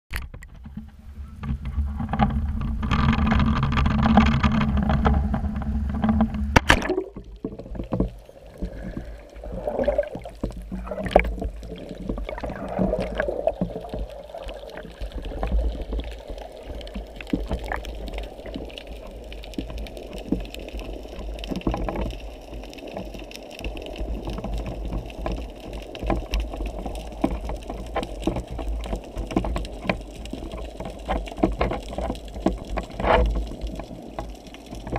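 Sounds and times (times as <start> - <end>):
muffled underwater rumble: 0.1 - 34.9
underwater clicks and knocks: 0.1 - 34.9
camera housing hitting water: 6.5 - 7.3.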